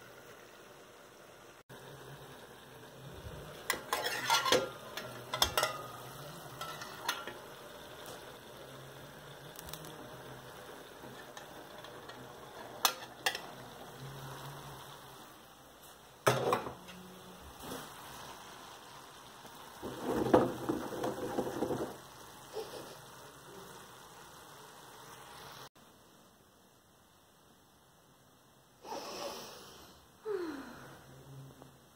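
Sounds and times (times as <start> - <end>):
stew sizzling in a pan: 0.0 - 25.8
kitchenware clinking: 3.4 - 8.3, 11.0 - 13.9, 16.2 - 17.0
dishes and cutlery clattering: 3.6 - 7.5, 11.1 - 13.6.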